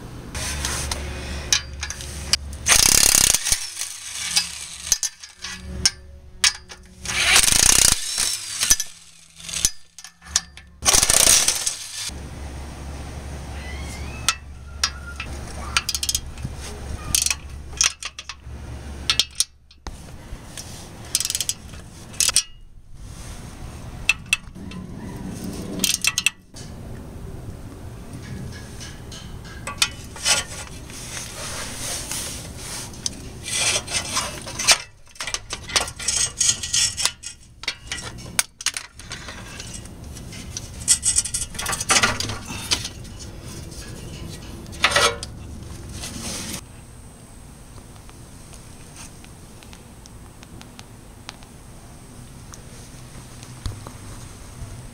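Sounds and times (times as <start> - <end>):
metal clinks and scrapes: 0.4 - 12.1, 14.3 - 19.8, 20.5 - 22.7, 25.4 - 26.8, 28.2 - 46.6
socket ratchet clicking: 2.6 - 5.8, 6.5 - 12.1.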